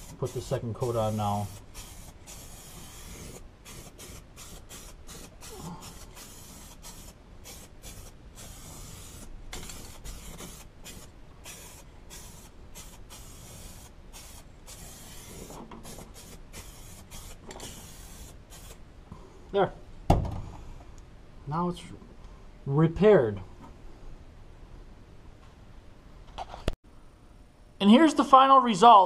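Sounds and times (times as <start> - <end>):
spray paint can hissing: 0.0 - 18.8.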